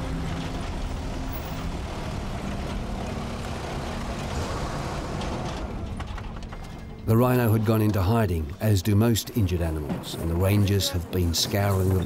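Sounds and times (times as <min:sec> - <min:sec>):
vehicle engine running: 0:00.0 - 0:07.0.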